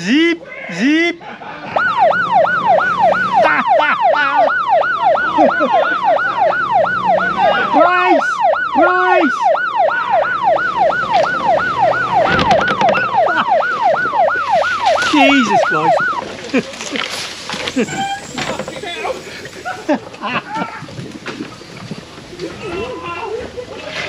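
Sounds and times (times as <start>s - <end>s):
electronic siren whoops: 1.7s - 16.3s.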